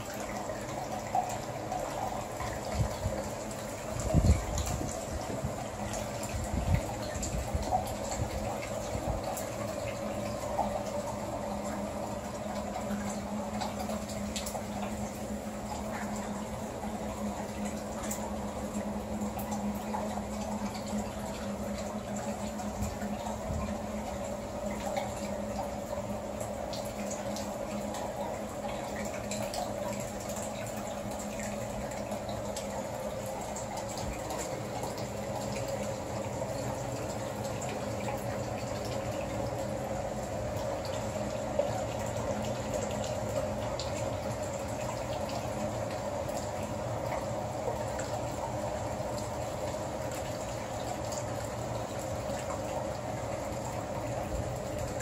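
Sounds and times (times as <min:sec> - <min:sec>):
running water: 0:00.0 - 0:55.0.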